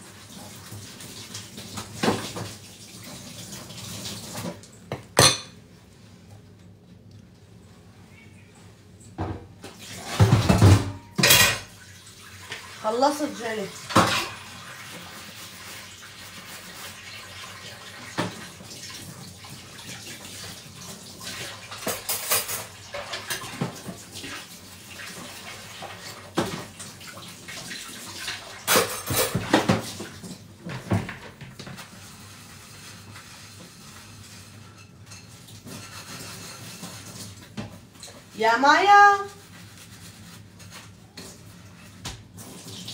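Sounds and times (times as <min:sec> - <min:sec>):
plates and cutlery clattering: 0:04.9 - 0:05.6, 0:10.0 - 0:11.7, 0:21.8 - 0:23.9, 0:28.6 - 0:30.1, 0:34.4 - 0:37.4.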